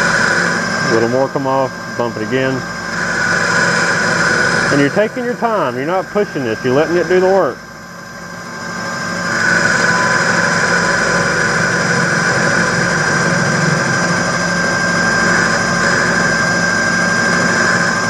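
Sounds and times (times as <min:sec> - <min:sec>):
lathe whining: 0:00.0 - 0:18.0
cutter scraping: 0:08.4 - 0:18.0.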